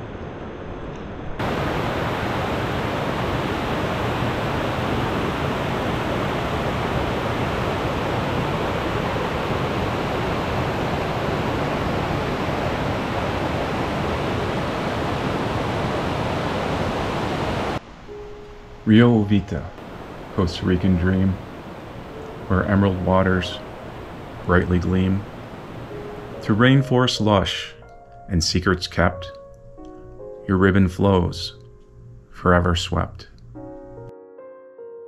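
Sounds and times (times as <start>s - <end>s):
water flowing over rocks: 1.4s - 17.8s
white-water rapids rushing: 1.4s - 17.8s, 19.8s - 26.5s.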